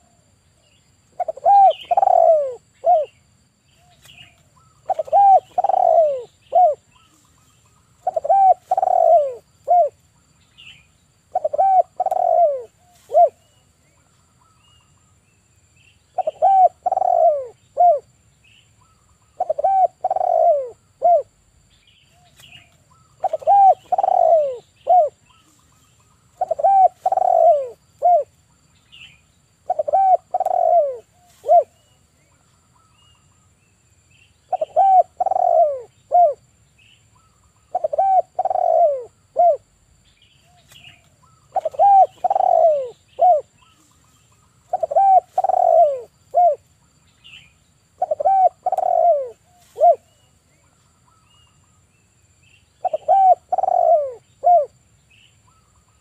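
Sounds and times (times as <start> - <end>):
dove cooing: 1.2 - 3.2, 4.6 - 7.2, 8.0 - 10.0, 11.3 - 13.6, 16.2 - 18.1, 19.4 - 21.4, 22.2 - 25.6, 26.3 - 28.3, 29.6 - 31.9, 34.5 - 36.4, 37.6 - 39.7, 40.4 - 43.9, 44.6 - 46.6, 48.0 - 50.3, 52.8 - 54.7.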